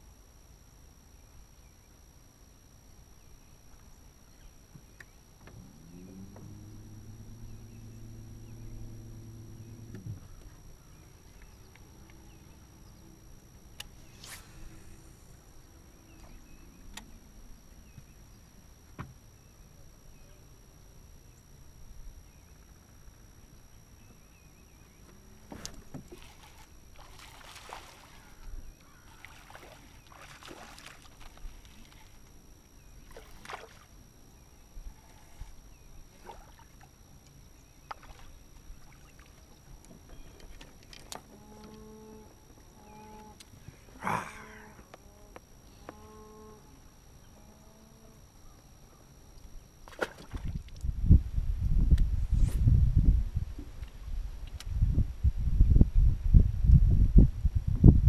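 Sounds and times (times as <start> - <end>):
low steady rumble: 0.0 - 58.0
fish splashing at water surface: 26.1 - 28.4, 29.1 - 32.0.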